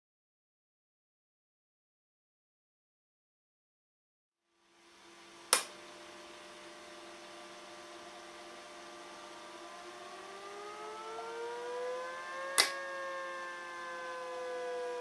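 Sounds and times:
vacuum pump whine rising in pitch: 4.5s - 15.0s.

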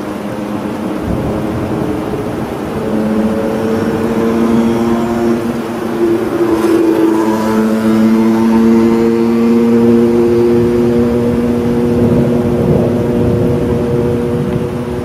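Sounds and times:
drone of held low tones: 0.0s - 15.0s.

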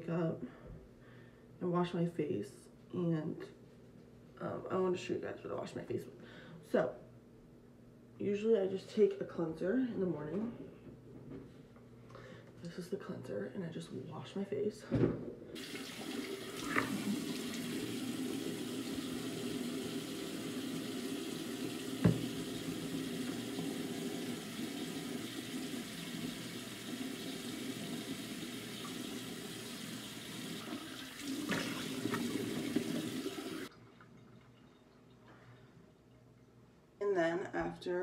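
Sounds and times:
water splashing: 15.6s - 20.0s, 30.6s - 35.1s
faucet running into sink: 15.6s - 35.2s.

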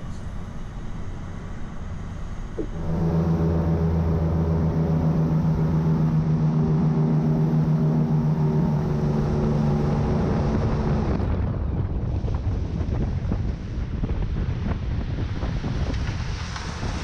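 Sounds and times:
airboat engine drone: 0.0s - 13.5s
rushing air noise: 2.6s - 13.6s.

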